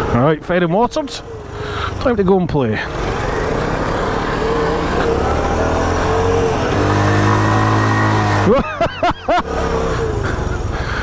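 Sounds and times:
motorcycle engine running: 0:00.0 - 0:11.0.

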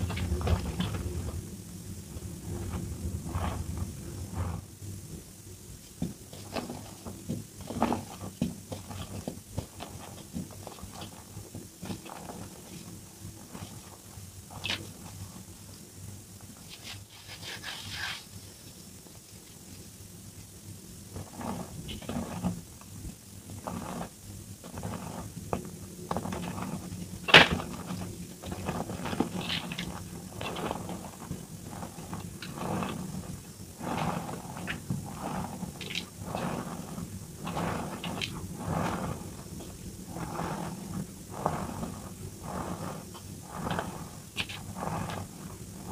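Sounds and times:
chalk crunching in hands: 0:16.7 - 0:18.3.

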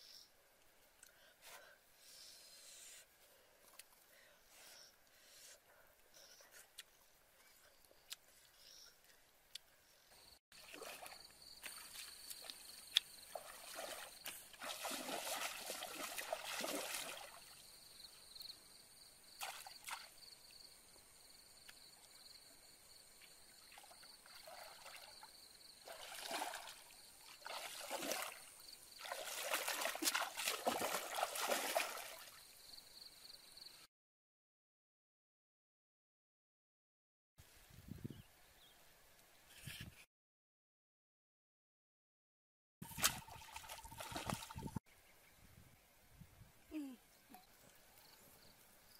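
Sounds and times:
water splashing around wading: 0:10.6 - 0:17.6, 0:23.7 - 0:32.4, 0:42.8 - 0:44.8.

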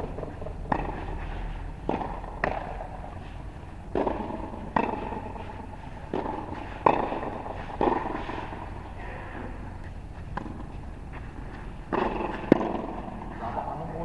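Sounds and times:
tennis ball bouncing on hard court: 0:00.1 - 0:03.2, 0:03.8 - 0:08.8, 0:09.4 - 0:13.4
tennis ball hit by racket: 0:00.2 - 0:01.2, 0:01.8 - 0:03.1, 0:03.9 - 0:08.8, 0:10.3 - 0:10.8, 0:11.4 - 0:13.4.

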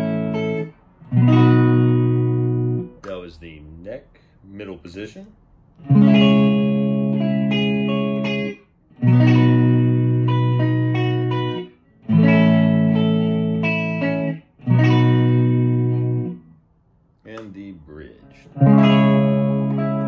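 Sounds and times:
clean electric guitar chords: 0:00.0 - 0:03.0, 0:05.8 - 0:16.5, 0:18.1 - 0:20.0.

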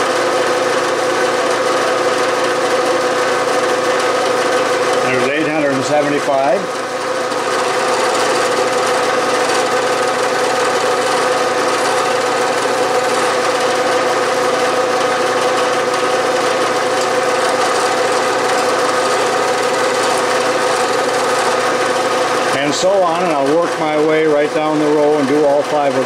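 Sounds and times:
drill cutting into metal: 0:00.0 - 0:26.0
milling machine spindle hum: 0:00.0 - 0:26.0.

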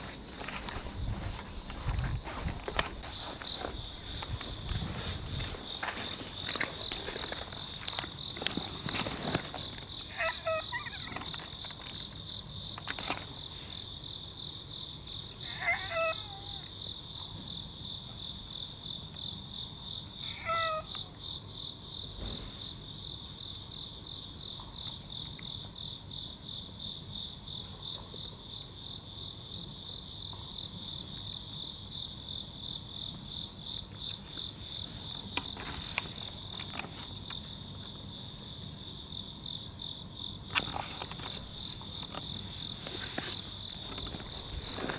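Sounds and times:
insects pulsing chorus: 0:00.0 - 0:44.9
cat meows: 0:10.1 - 0:11.3, 0:15.4 - 0:16.7, 0:20.2 - 0:21.0.

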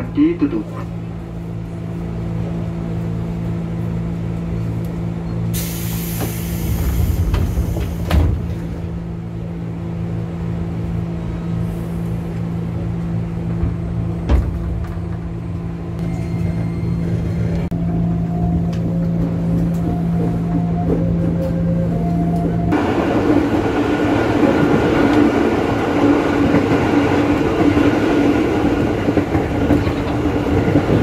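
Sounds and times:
train equipment humming: 0:00.0 - 0:31.0
air hiss of closing doors: 0:05.5 - 0:08.4.

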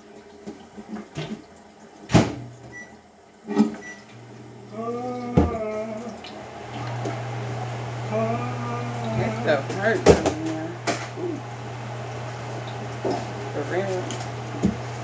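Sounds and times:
steady low hum: 0:04.2 - 0:15.0
dishes knocking in sink: 0:10.0 - 0:10.5.

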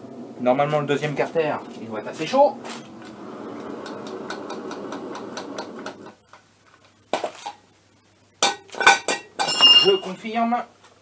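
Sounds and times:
rattling mechanical buzz: 0:00.0 - 0:06.2
metallic knocks and clinks: 0:08.4 - 0:10.1.

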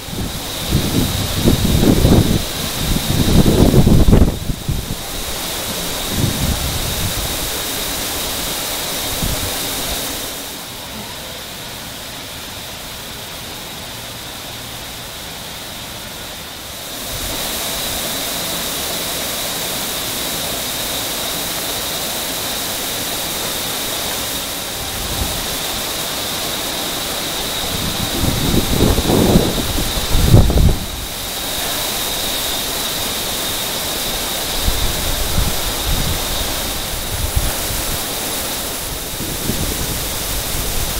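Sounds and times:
high whine: 0:00.0 - 0:40.9
industrial equipment hiss: 0:00.0 - 0:40.9.

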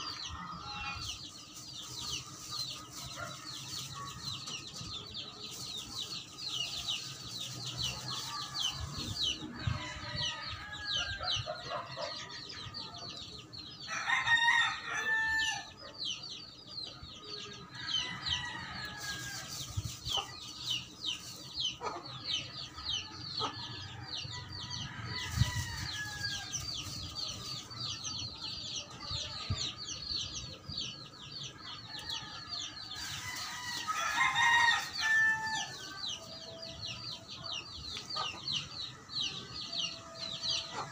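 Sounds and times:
rooster crowing: 0:31.9 - 0:36.1.

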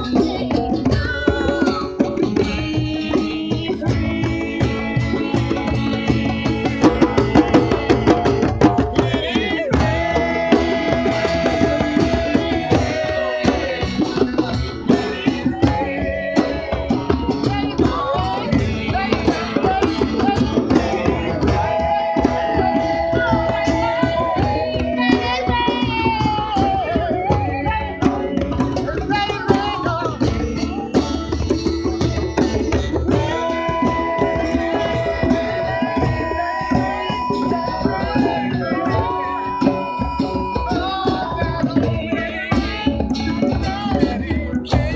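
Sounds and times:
woman singing into a microphone: 0:00.0 - 0:30.9, 0:32.6 - 0:44.9
hand drums: 0:00.0 - 0:44.9
strummed acoustic guitar: 0:00.0 - 0:44.9.

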